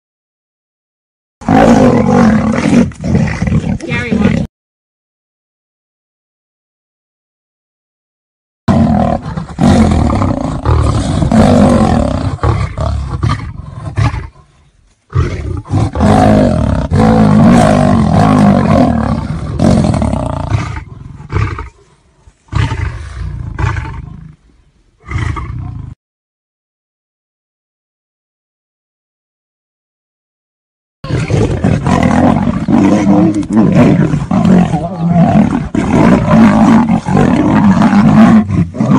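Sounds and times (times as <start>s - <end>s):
big cat roaring: 1.4s - 4.5s, 8.7s - 14.5s, 15.1s - 21.9s, 22.5s - 24.4s, 25.0s - 26.0s, 31.0s - 38.9s.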